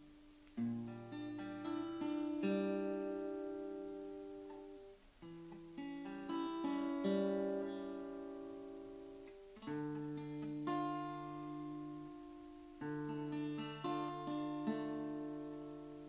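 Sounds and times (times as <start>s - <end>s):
acoustic guitar picked chords: 0.0s - 16.0s.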